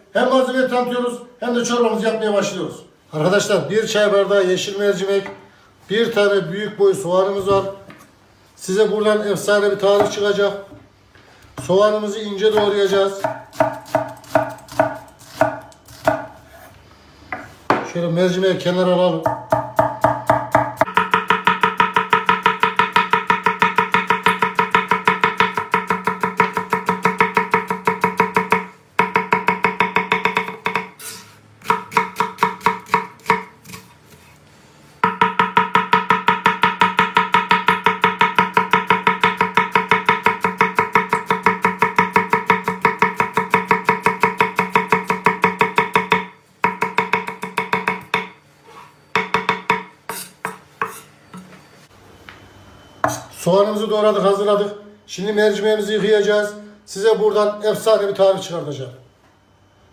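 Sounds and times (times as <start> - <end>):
knife chopping on wooden board: 12.5 - 16.6, 19.3 - 31.0, 31.6 - 33.9, 35.0 - 48.3, 49.2 - 51.1.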